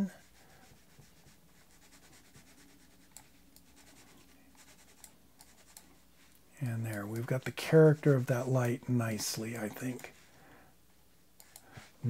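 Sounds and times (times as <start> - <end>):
computer mouse scratching: 0.2 - 6.0
soft mouse clicks: 4.9 - 7.5, 11.4 - 11.8.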